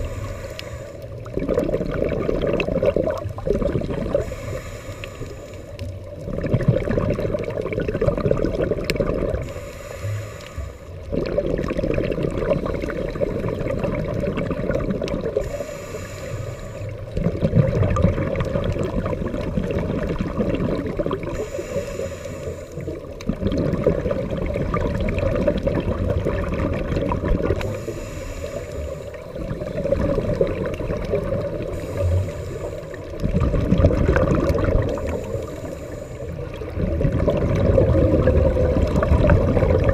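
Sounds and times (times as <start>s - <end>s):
regulator hissing inhale: 0.0s - 1.3s, 4.1s - 6.0s, 9.4s - 11.1s, 15.4s - 17.2s, 21.2s - 23.2s, 27.6s - 29.7s, 31.4s - 33.3s, 34.8s - 36.8s
exhaled bubbles rushing: 1.1s - 4.5s, 6.0s - 9.6s, 11.0s - 15.6s, 16.9s - 21.8s, 22.8s - 27.9s, 28.7s - 39.9s.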